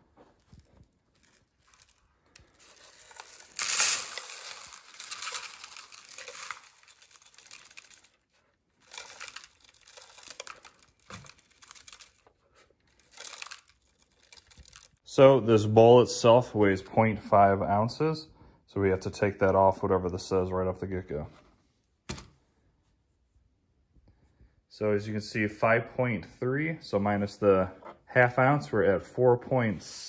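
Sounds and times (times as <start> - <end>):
dry debris pouring into bowl: 1.2 - 12.2, 13.0 - 15.0.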